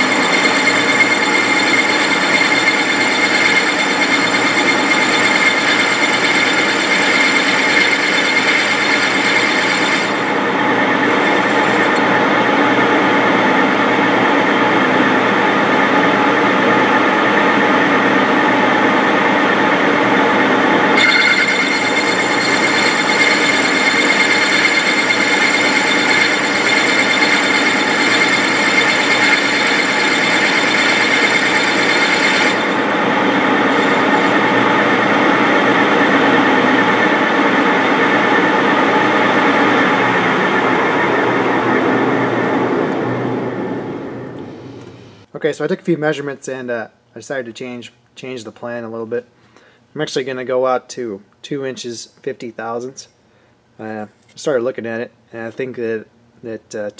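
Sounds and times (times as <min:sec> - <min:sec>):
metal lathe cutting with whine: 0:00.0 - 0:16.6, 0:17.3 - 0:43.8.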